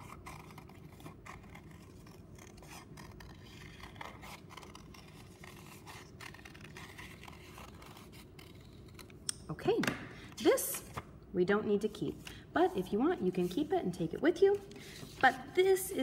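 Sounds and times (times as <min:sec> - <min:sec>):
scissors snipping paper: 0:00.0 - 0:09.4.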